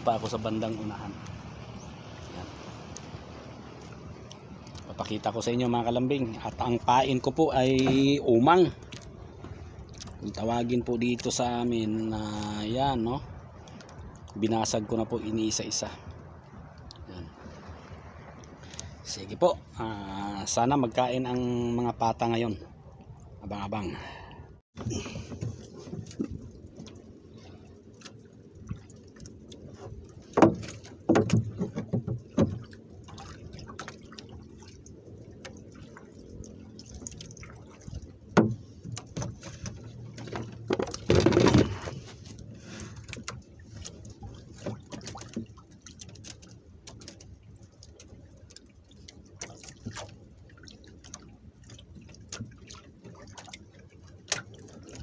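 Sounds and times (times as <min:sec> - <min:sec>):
water lapping and dripping: 0:00.0 - 0:55.0
knocks and clicks from fishing line: 0:24.8 - 0:27.1, 0:28.0 - 0:34.2, 0:36.9 - 0:48.7, 0:51.0 - 0:55.0.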